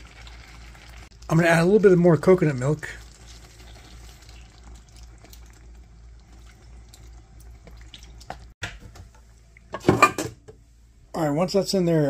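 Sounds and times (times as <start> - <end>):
curry bubbling: 0.0 - 8.6
liquid pouring into pan: 2.3 - 8.5.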